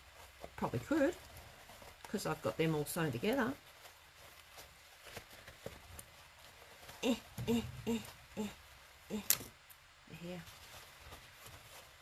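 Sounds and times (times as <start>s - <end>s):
fabric basket handling: 0.0s - 12.0s
person muttering: 7.0s - 9.5s.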